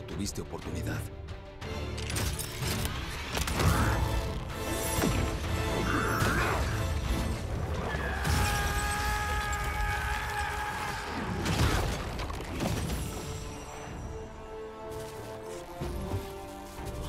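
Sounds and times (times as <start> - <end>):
film score music: 0.0 - 17.0
stone breaking crash: 11.1 - 13.3.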